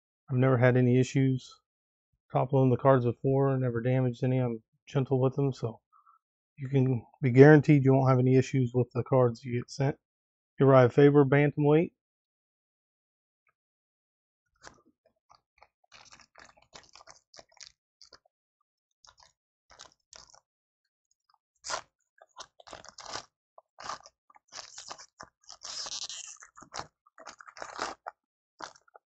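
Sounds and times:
foil wrapper crinkling and tearing: 0:15.9 - 0:18.2, 0:19.0 - 0:20.4, 0:21.6 - 0:29.0.

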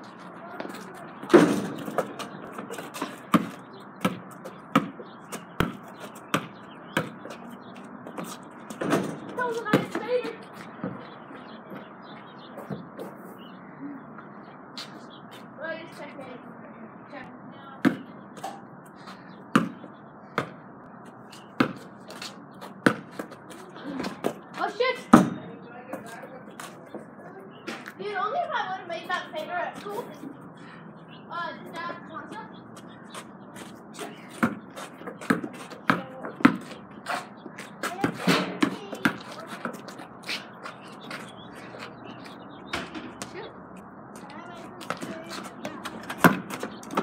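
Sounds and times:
basketball dribbling: 0:01.8 - 0:07.4, 0:34.2 - 0:40.0.

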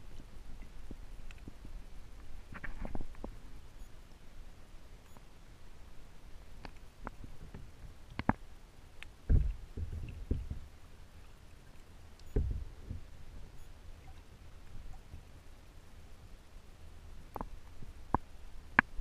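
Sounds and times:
muffled underwater rumble: 0:09.2 - 0:19.0.

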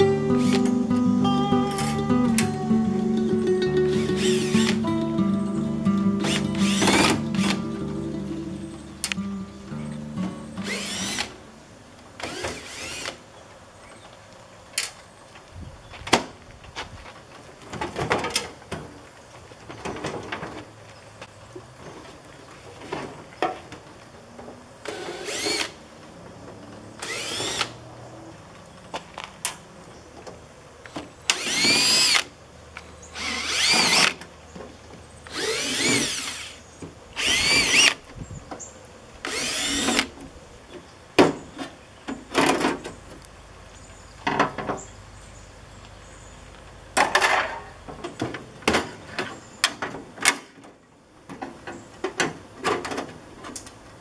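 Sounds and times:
cordless drill whirring: 0:03.9 - 0:04.9, 0:06.2 - 0:07.6, 0:10.6 - 0:11.4, 0:12.2 - 0:13.2, 0:24.9 - 0:25.8, 0:27.0 - 0:27.8, 0:31.3 - 0:32.2, 0:33.2 - 0:34.2, 0:35.3 - 0:36.6, 0:37.2 - 0:38.0, 0:39.2 - 0:40.1.

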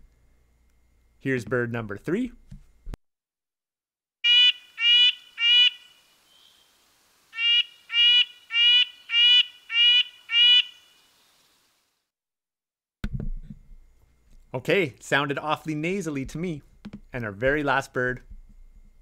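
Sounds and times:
nuthatch nasal calls: 0:04.2 - 0:11.1.

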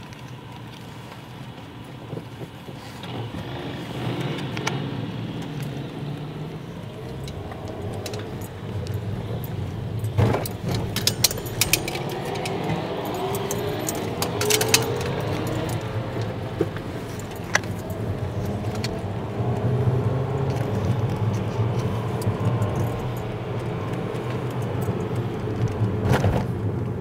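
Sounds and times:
motorcycle engines pulling away: 0:00.0 - 0:27.0
car engine from inside: 0:02.0 - 0:27.0
sharp rattling clicks: 0:05.4 - 0:19.8.

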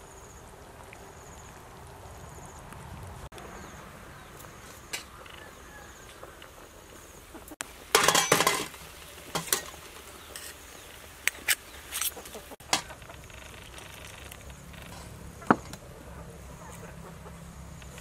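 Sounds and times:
metal spoon clinking on tin and ladle: 0:08.0 - 0:08.7.

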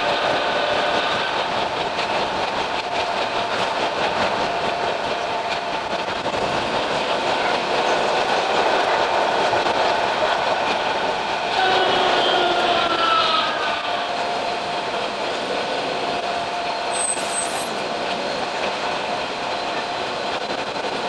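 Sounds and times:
rapid clicking over rails: 0:00.0 - 0:21.0
train wheels hissing on rails: 0:00.0 - 0:21.0.

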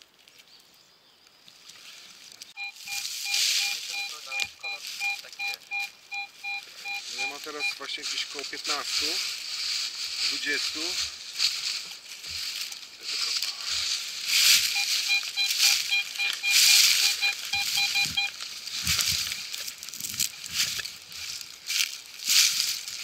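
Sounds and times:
dry leaves rustling: 0:01.4 - 0:23.0
metal detector beeping: 0:02.5 - 0:09.2, 0:13.0 - 0:23.0.

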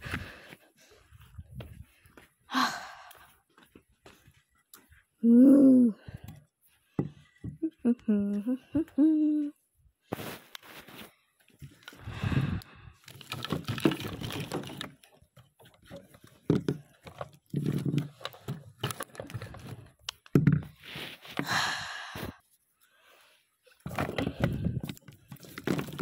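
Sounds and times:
knocks scrapes and rustling: 0:13.1 - 0:19.8.

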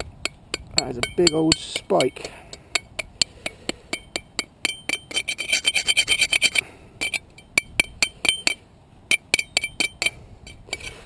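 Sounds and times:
trowel clinking on iron spike: 0:00.6 - 0:03.2, 0:03.9 - 0:11.0.

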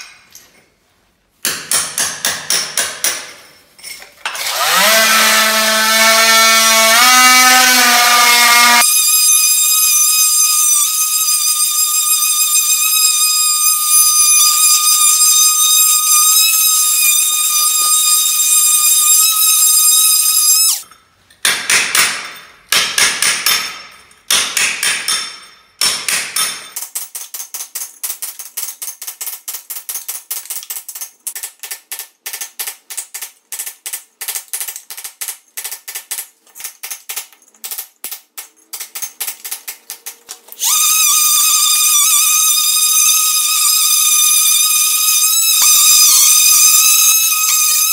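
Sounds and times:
multi-tool grinding whine: 0:04.3 - 0:20.8, 0:40.6 - 0:47.9.

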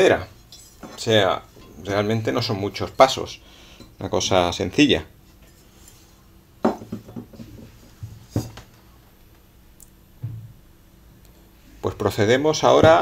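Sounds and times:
metal knocks on wooden table: 0:06.6 - 0:07.7.

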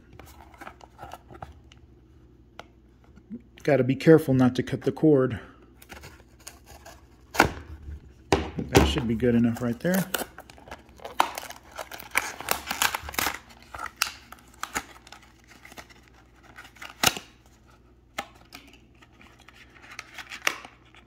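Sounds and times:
plastic packaging clicking: 0:09.6 - 0:15.9.

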